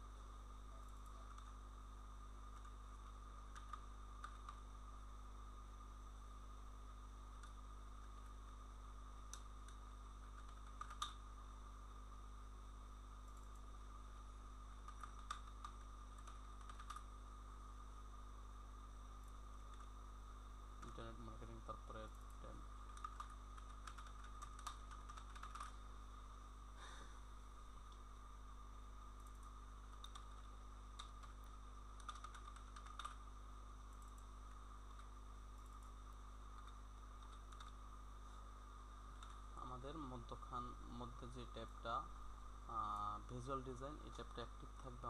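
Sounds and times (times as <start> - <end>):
electrical hum: 0.0 - 45.0
mouse clicks: 2.5 - 4.6, 9.3 - 11.2, 14.8 - 17.1, 29.2 - 33.2, 34.9 - 37.8, 39.2 - 39.4
keyboard keystrokes: 14.9 - 17.0, 22.9 - 25.7, 32.0 - 33.2.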